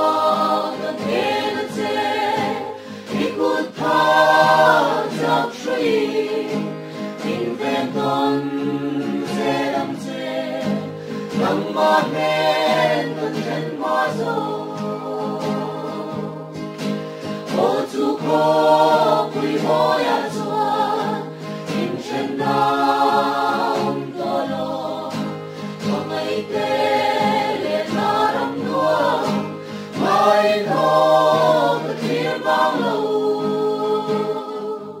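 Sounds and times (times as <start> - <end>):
group of people singing: 0.0 - 35.0.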